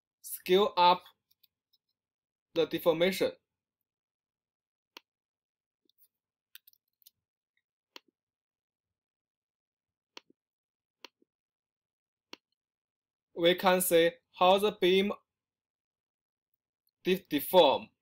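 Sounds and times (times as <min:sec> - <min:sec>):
mouse and keyboard clicks: 0:05.9 - 0:07.2.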